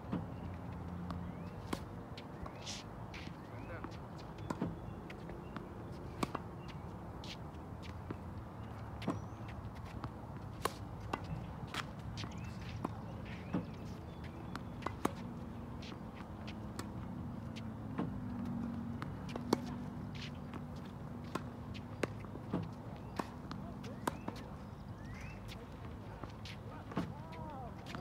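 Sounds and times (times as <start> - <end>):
tennis ball bouncing: 0.1 - 28.0
court shoe footsteps: 1.0 - 28.0
tennis ball strokes popping: 9.0 - 25.8.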